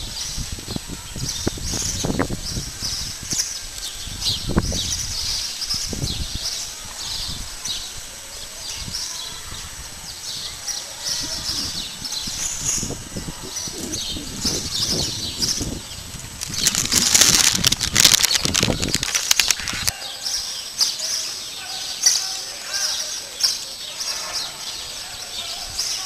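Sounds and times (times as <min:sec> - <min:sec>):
small birds chirping: 0:00.0 - 0:26.0
rustling and crackling noise: 0:11.0 - 0:20.0.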